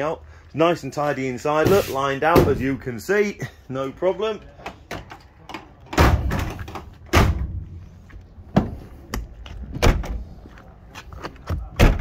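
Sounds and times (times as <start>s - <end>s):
van doors metal clunks and thuds: 5.9s - 9.0s, 9.6s - 10.4s, 11.5s - 12.0s.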